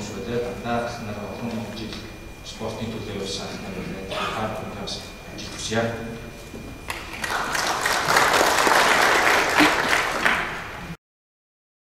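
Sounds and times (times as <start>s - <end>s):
audience applauding: 6.9s - 10.8s.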